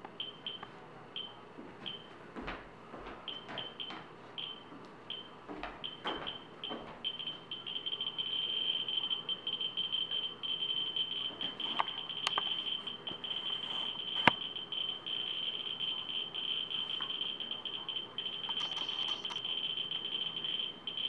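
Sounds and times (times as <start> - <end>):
geiger counter buzzing: 7.1 - 21.0.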